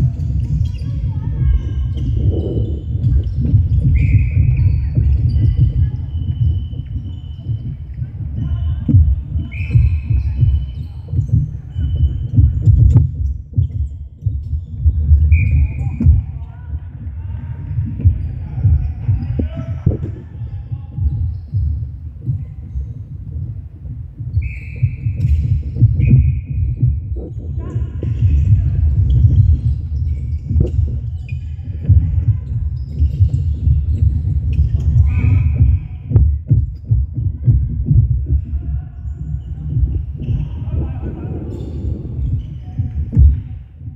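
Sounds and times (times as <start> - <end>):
low thudding and rumble: 0.0 - 43.9
shoe squeaks: 0.1 - 16.5, 24.3 - 35.6.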